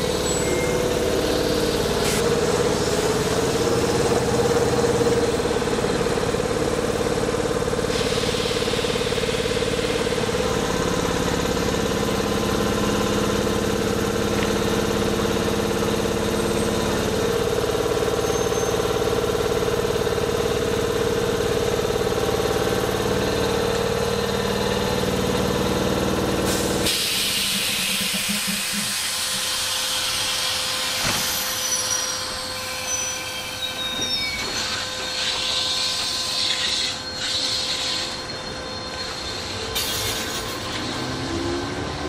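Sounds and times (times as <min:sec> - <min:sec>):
stopped trains humming: 0:00.0 - 0:42.0
train pulling out: 0:00.0 - 0:42.0
wheels squealing on rails: 0:00.0 - 0:42.0
air hiss: 0:26.4 - 0:31.9.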